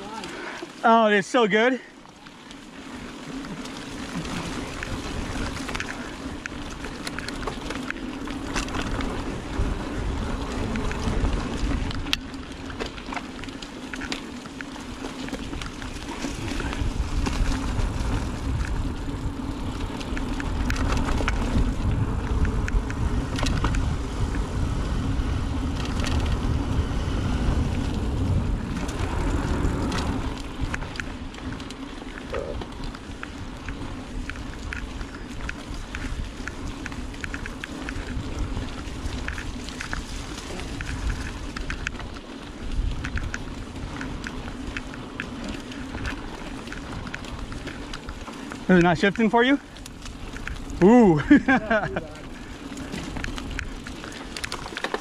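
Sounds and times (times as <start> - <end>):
bike clicking and rattling: 0.0 - 55.0
knobby tyres humming: 0.0 - 55.0
wind rumbling on microphone: 2.5 - 55.0.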